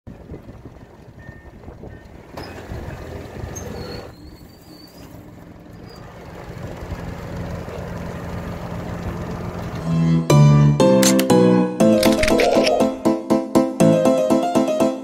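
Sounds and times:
wind rumbling on microphone: 0.1s - 3.6s.

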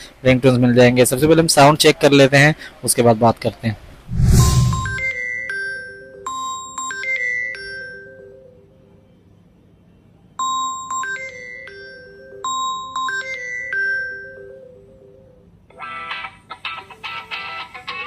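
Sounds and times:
phone ringtone melody: 11.0s - 15.2s.

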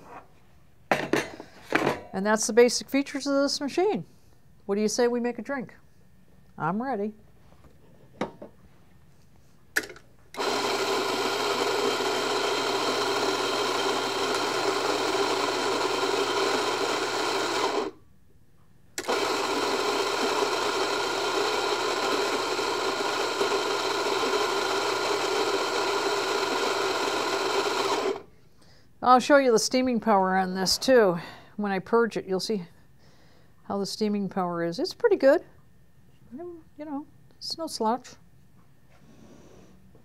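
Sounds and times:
electric coffee grinder grinding: 10.4s - 18.0s, 19.0s - 28.3s.

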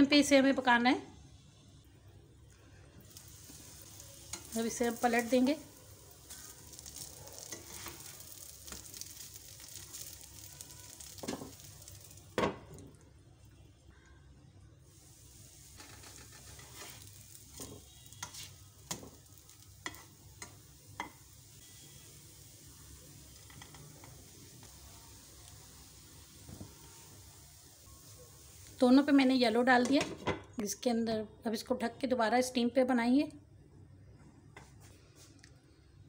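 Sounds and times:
food sizzling in a pan: 2.9s - 13.2s, 14.8s - 30.2s
spatula tapping a pan: 10.9s - 12.6s, 17.6s - 21.3s.

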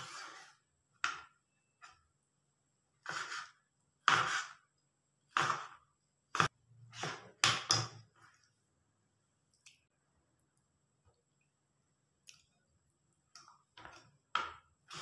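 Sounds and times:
knife slicing on chopping board: 3.0s - 4.6s.

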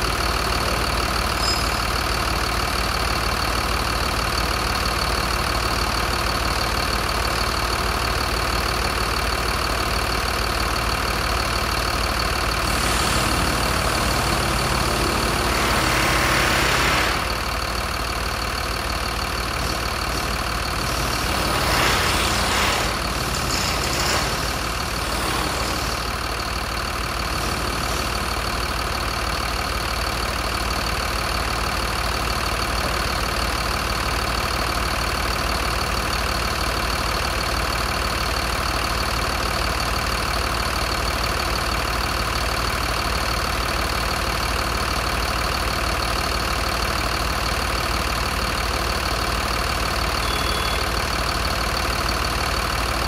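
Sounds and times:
diesel engine idling: 0.0s - 53.0s
high engine whine: 50.1s - 51.2s.

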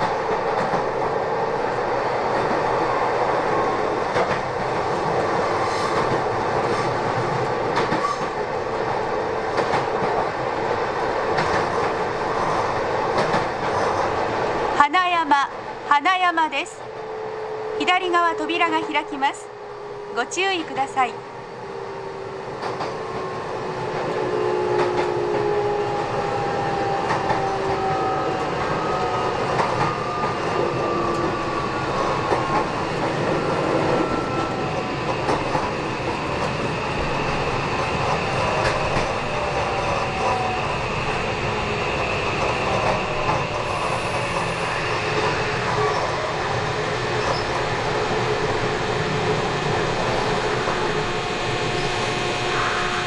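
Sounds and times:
train running rumble: 0.0s - 53.0s
squealing wheels: 43.6s - 46.2s, 47.2s - 47.5s.

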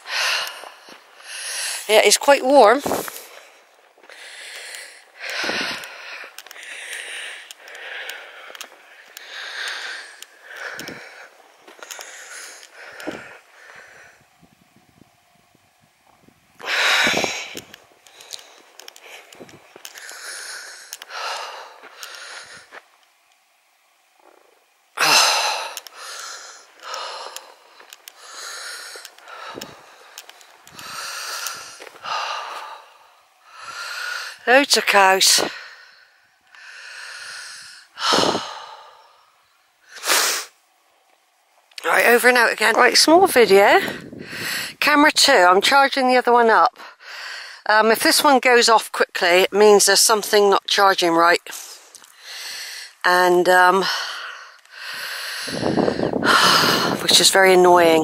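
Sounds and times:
person breathing: 0.0s - 2.0s, 2.8s - 14.3s, 16.6s - 22.8s, 24.3s - 34.5s, 35.4s - 40.5s, 43.8s - 44.8s, 46.8s - 47.7s, 51.5s - 53.0s, 53.8s - 57.0s
light ticks: 20.8s - 21.1s, 28.8s - 30.8s.

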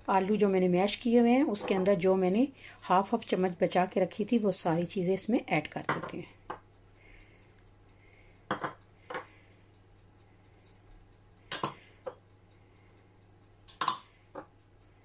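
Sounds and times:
bowls clinking on bowl rim: 8.5s - 9.3s.

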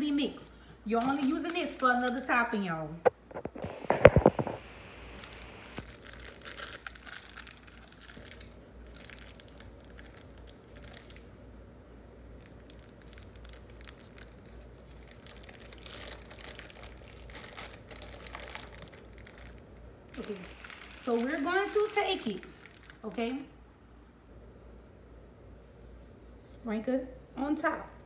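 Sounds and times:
plastic packet crinkling: 1.0s - 2.6s, 3.3s - 11.3s, 12.4s - 23.5s.

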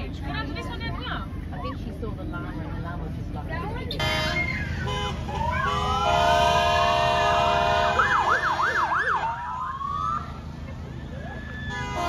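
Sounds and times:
emergency siren wailing and yelping: 4.4s - 6.9s, 8.0s - 11.8s.

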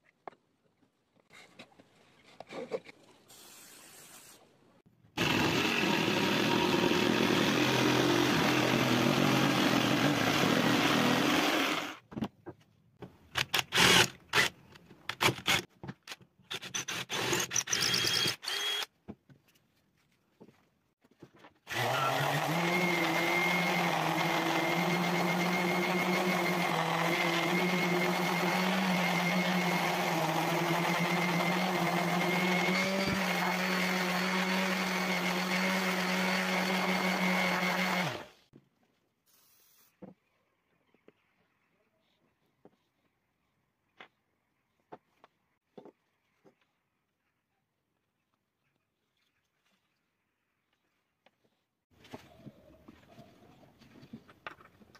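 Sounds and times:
jigsaw cutting wood: 5.2s - 12.0s, 13.4s - 15.7s, 16.5s - 18.9s, 21.6s - 38.4s
orbital sander on wood: 5.2s - 12.0s, 21.7s - 38.4s.

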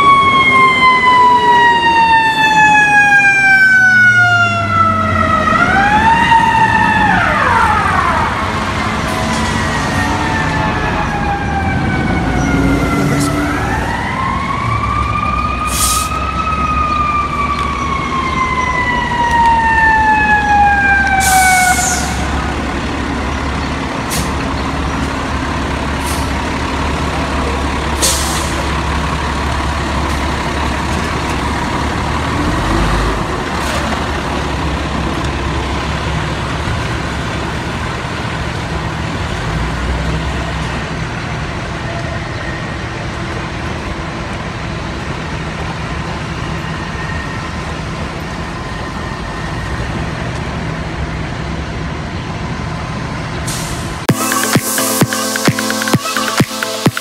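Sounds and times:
fire engine siren wailing: 0.0s - 57.0s
diesel engine rumble: 3.7s - 54.1s
short air hisses: 15.7s - 16.2s, 28.0s - 28.6s, 53.5s - 54.0s.

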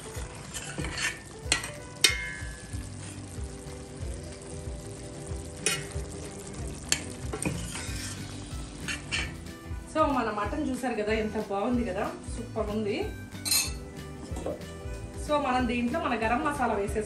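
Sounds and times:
curry sizzling in a pan: 0.0s - 17.0s.

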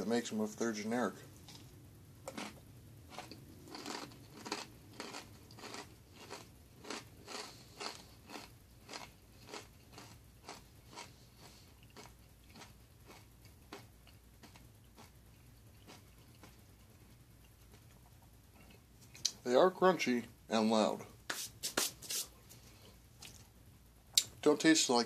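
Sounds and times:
person chewing crunchy food: 2.3s - 19.3s.

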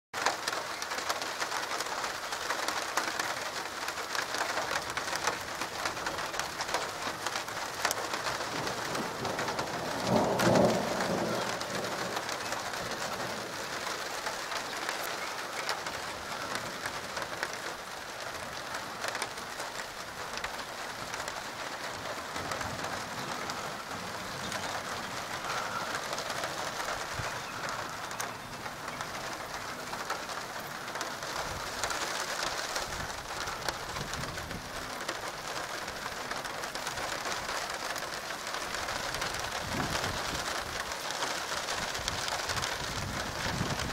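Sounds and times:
steady rain falling: 0.2s - 43.9s
roll of thunder: 8.5s - 13.5s.

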